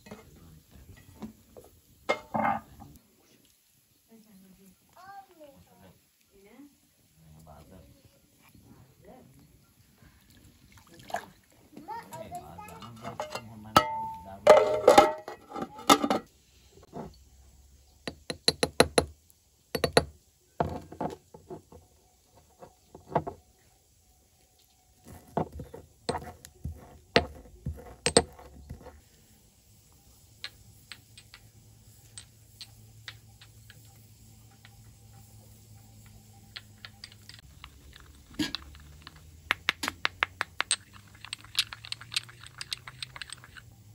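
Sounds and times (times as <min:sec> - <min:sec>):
cooking utensils clinking: 0:02.1 - 0:02.9, 0:12.6 - 0:16.3
pestle grinding in ceramic mortar: 0:25.1 - 0:29.0, 0:36.4 - 0:43.7.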